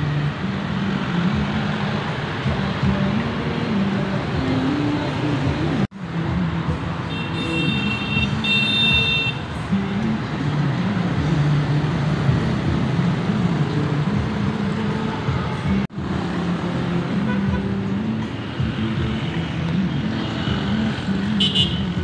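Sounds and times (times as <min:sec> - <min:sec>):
motorbikes and scooters passing: 0:00.0 - 0:22.0.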